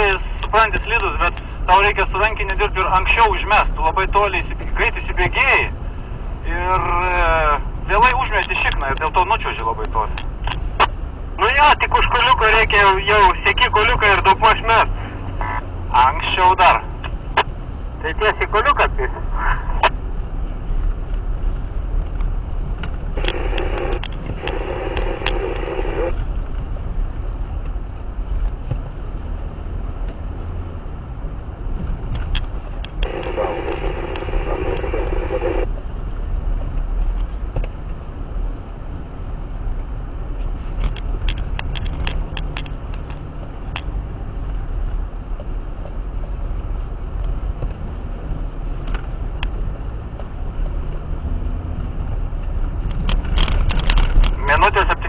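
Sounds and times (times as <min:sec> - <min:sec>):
car engine rumbling: 0:00.0 - 0:55.0
sharp clicks: 0:23.2 - 0:25.9, 0:32.1 - 0:35.5, 0:40.8 - 0:43.9, 0:52.8 - 0:55.0
crackling hiss: 0:23.2 - 0:26.2.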